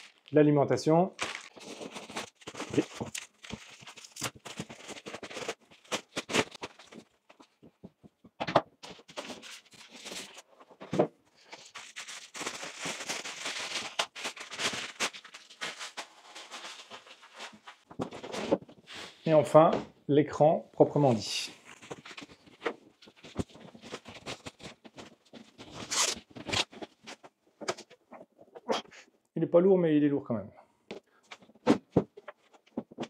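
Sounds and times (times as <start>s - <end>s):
packaging crinkling: 0.0s - 0.3s, 1.1s - 7.5s, 11.4s - 18.4s
packaging rustling: 0.0s - 0.3s, 1.1s - 8.0s, 8.8s - 19.1s, 21.6s - 28.0s.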